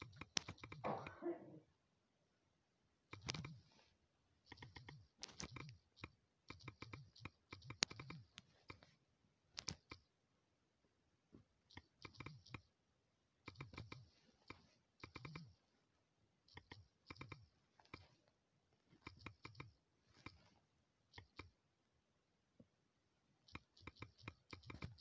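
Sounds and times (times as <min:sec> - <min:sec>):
phone keyboard typing clicks: 0:00.0 - 0:00.8, 0:03.1 - 0:03.7, 0:04.4 - 0:08.9, 0:11.7 - 0:12.7, 0:13.4 - 0:15.6, 0:16.5 - 0:18.2, 0:19.0 - 0:20.4, 0:23.5 - 0:25.0.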